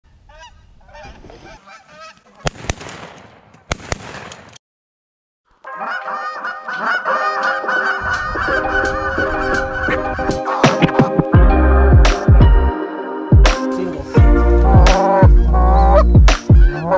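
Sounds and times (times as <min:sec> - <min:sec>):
geese honking: 0:00.3 - 0:02.5, 0:05.6 - 0:11.3, 0:14.2 - 0:16.9
shotgun shots: 0:02.4 - 0:04.6.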